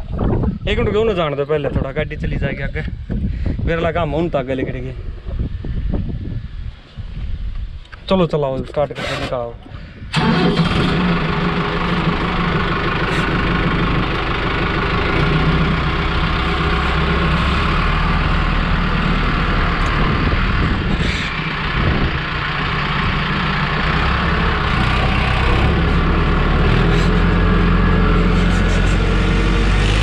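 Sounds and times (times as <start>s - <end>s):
tractor diesel engine running: 8.8s - 30.0s.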